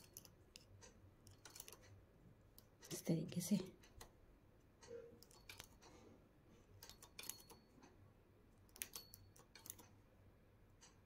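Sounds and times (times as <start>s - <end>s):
knitting machine metallic clicks: 0.0s - 4.2s, 4.8s - 6.0s, 6.7s - 8.0s, 8.6s - 10.0s.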